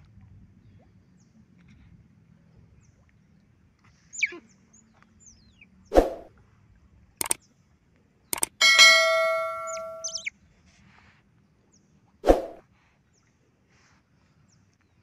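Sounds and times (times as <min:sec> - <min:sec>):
short whoosh: 0:05.9 - 0:06.3, 0:12.2 - 0:12.6
double mouse click: 0:08.4 - 0:08.6
high-pitched falling squeaks: 0:08.6 - 0:10.3.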